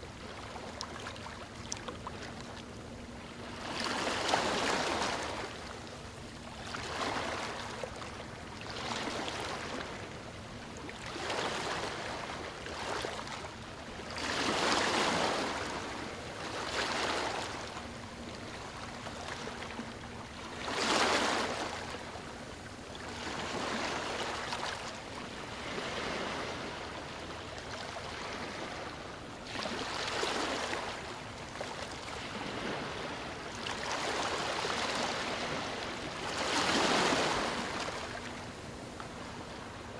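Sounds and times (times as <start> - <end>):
ocean waves washing onto shore: 11.0 - 19.6, 23.1 - 39.9.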